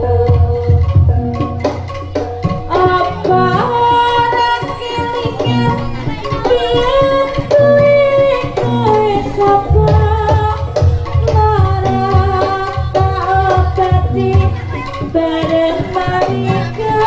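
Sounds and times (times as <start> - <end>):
hand drum strokes: 0.0 - 17.0.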